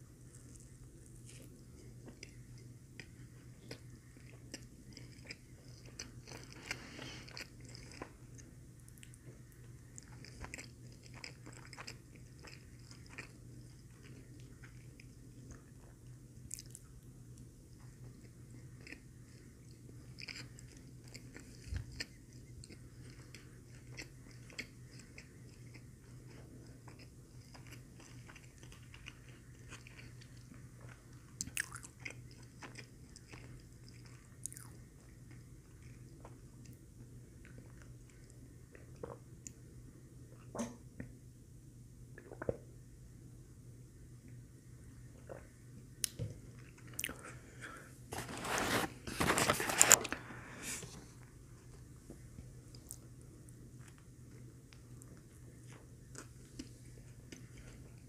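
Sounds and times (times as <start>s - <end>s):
chewing with wet mouth sounds: 0.2s - 39.6s, 51.6s - 58.0s.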